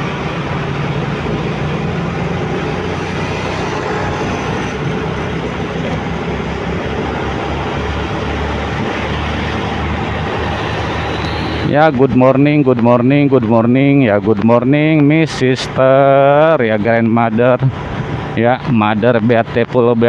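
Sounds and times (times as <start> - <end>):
motorcycle engine and road noise: 0.0 - 20.0
wind over microphone: 13.8 - 18.8.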